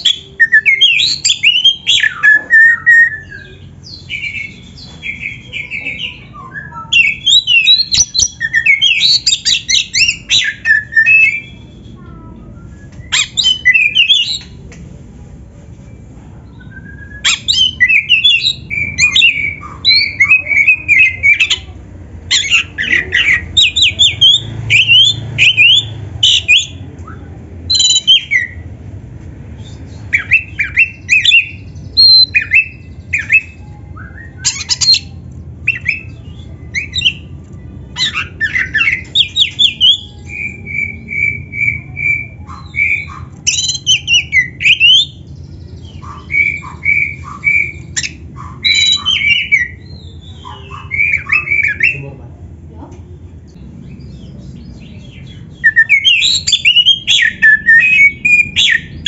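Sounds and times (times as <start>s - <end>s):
bird singing: 0.0s - 14.6s, 16.4s - 28.7s, 29.6s - 52.2s, 53.2s - 59.0s.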